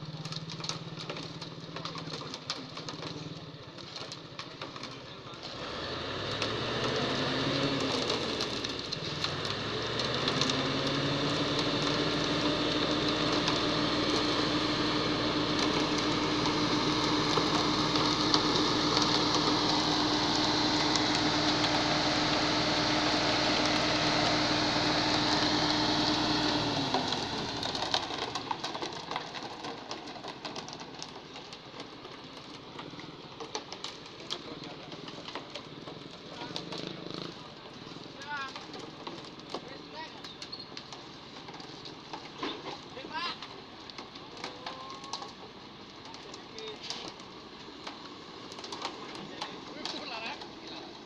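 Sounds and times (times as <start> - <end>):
diesel engine revving: 0.0 - 39.6
wet concrete sliding down chute: 0.0 - 51.0.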